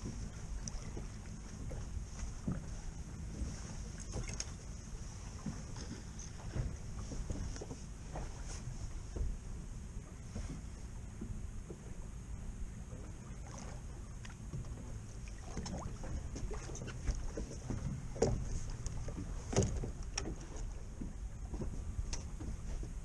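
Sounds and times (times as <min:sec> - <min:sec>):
wind rumbling on microphone: 0:00.0 - 0:23.0.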